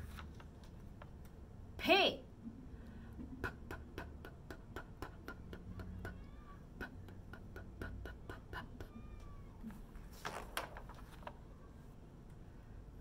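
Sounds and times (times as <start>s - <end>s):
woman making p puffs: 2.4s - 9.1s.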